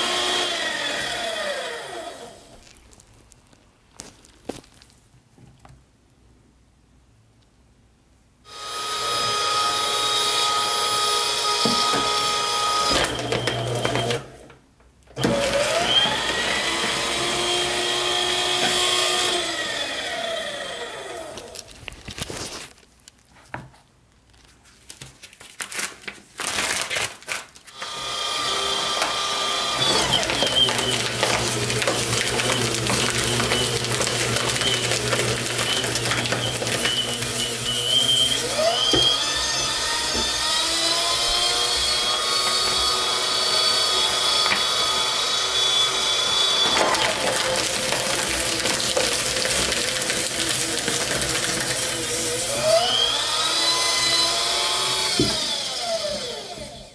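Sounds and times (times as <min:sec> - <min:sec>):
paper shredder motor whining: 0:00.0 - 0:02.9, 0:08.5 - 0:22.5, 0:27.7 - 0:56.9
paper rustling: 0:02.5 - 0:05.9, 0:21.1 - 0:27.9, 0:28.7 - 0:42.9, 0:46.3 - 0:52.6.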